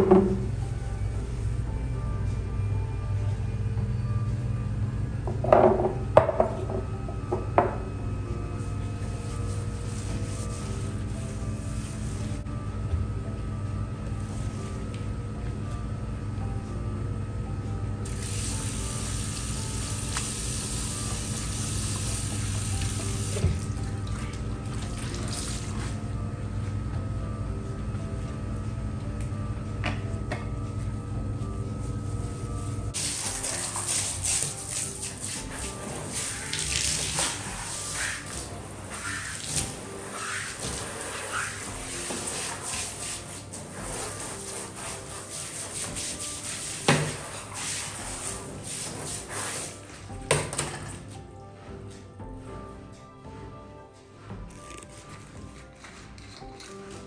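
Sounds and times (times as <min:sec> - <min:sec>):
shower spraying into bathtub: 0:18.1 - 0:23.8, 0:33.0 - 0:49.8
tap water running into sink: 0:18.1 - 0:25.8, 0:33.0 - 0:39.8, 0:45.8 - 0:47.8.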